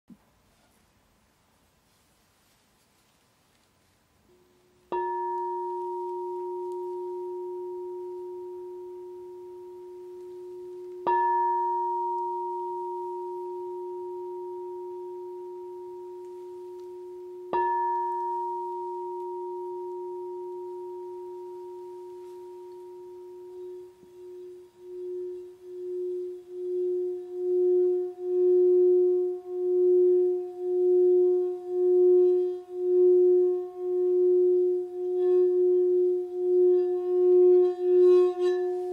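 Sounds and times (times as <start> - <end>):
singing bowl rim singing: 4.8 - 38.9
singing bowl struck with mallet: 4.9 - 38.9.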